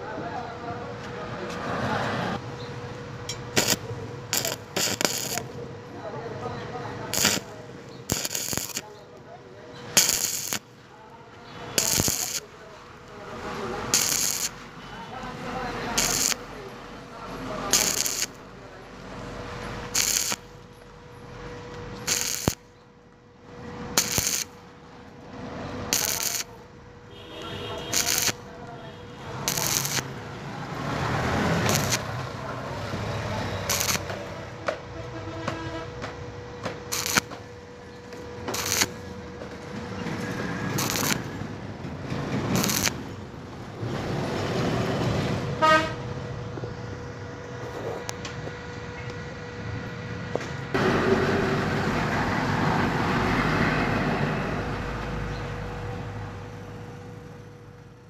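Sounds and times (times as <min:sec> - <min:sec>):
passing traffic: 0:00.0 - 0:58.0
welding arc crackling sizzle: 0:03.0 - 0:05.7, 0:06.4 - 0:09.2, 0:09.8 - 0:10.8, 0:11.6 - 0:22.8, 0:23.6 - 0:43.2
vehicle horn toot: 0:27.1 - 0:29.4, 0:34.9 - 0:36.0, 0:45.6 - 0:46.1.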